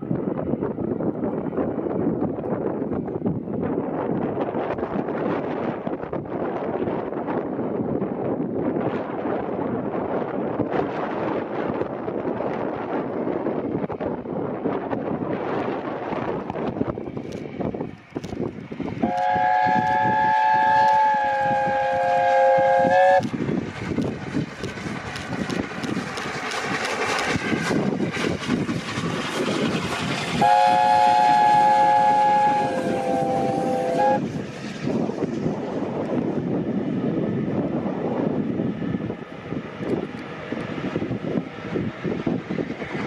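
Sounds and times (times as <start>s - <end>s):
steam locomotive exhaust: 15.5s - 43.0s
train wheels clattering: 16.4s - 36.5s
steam locomotive chime whistle: 19.0s - 23.3s, 30.4s - 34.3s.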